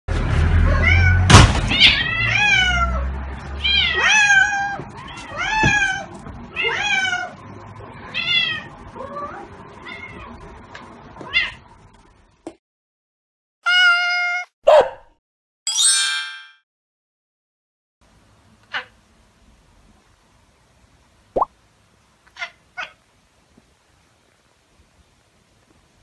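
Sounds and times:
cats meowing: 0:00.7 - 0:07.4, 0:13.7 - 0:14.5.

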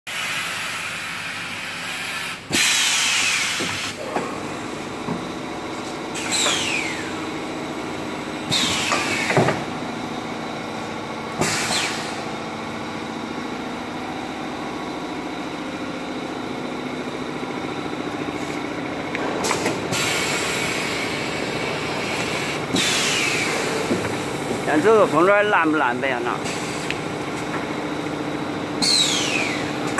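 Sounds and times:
packaging machine humming: 0:00.6 - 0:29.9.

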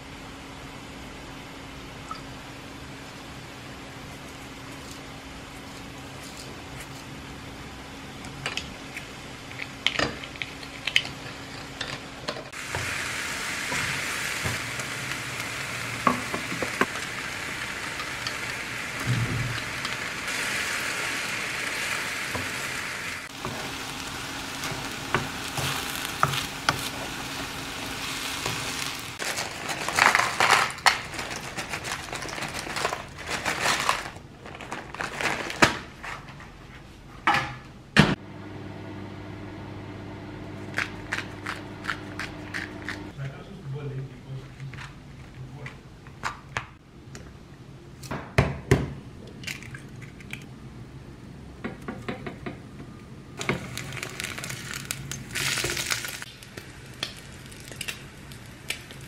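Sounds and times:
stir-fry sizzling in a pan: 0:12.5 - 0:33.0, 0:38.2 - 0:43.1
plastic bag and container clatter: 0:28.5 - 0:36.4, 0:53.5 - 0:56.3.

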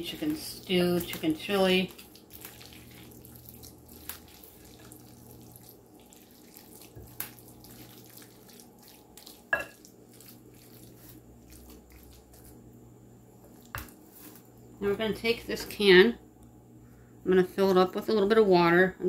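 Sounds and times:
faint steady hum: 0:00.0 - 0:19.0
spoon squelching in filling: 0:00.6 - 0:12.6
spoon tapping glass dish: 0:09.6 - 0:09.8.

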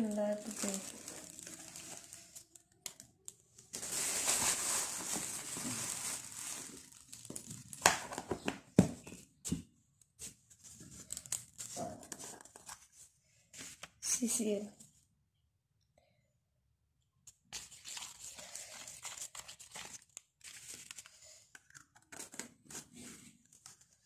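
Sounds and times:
plastic bag crinkling: 0:00.0 - 0:08.4.

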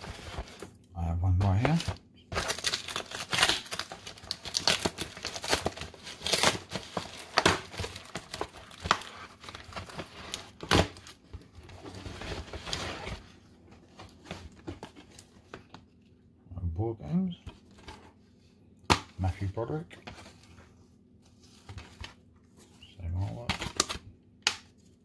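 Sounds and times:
paper crinkling: 0:01.4 - 0:15.9.

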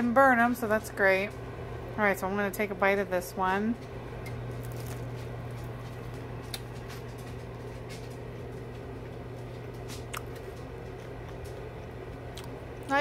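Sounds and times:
steady low hum: 0:00.0 - 0:13.0
crisp clicks of pretzel chewing: 0:04.2 - 0:13.0.

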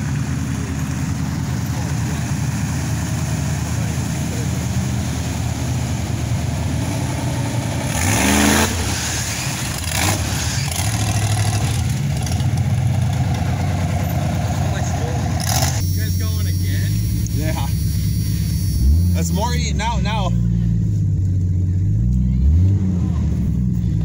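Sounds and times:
truck engine revving: 0:00.0 - 0:24.0.

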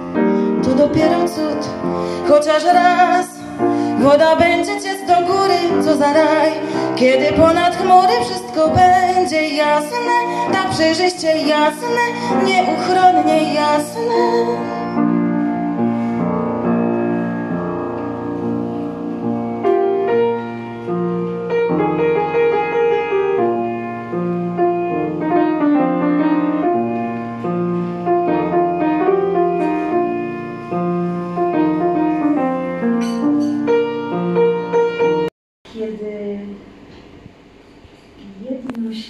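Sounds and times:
solo grand piano: 0:00.0 - 0:35.3.

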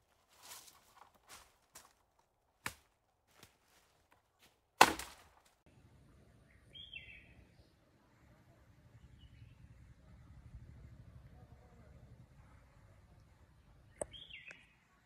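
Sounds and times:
faint outdoor ambience: 0:00.0 - 0:15.0.

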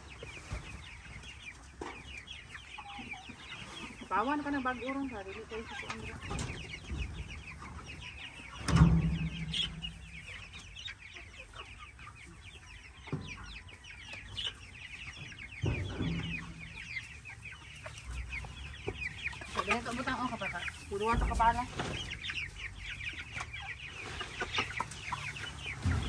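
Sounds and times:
chicks cheeping: 0:00.0 - 0:26.0
hens clucking: 0:00.0 - 0:26.0.

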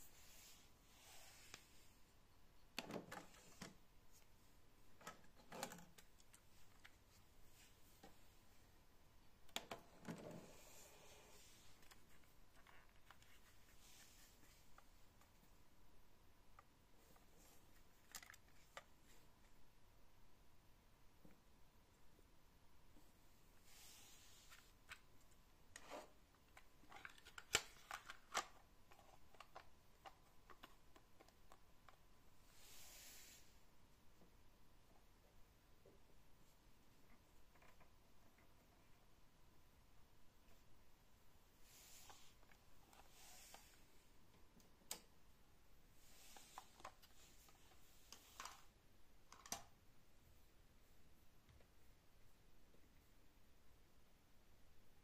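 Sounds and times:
plastic clicks of cassette loading: 0:26.6 - 0:32.0.

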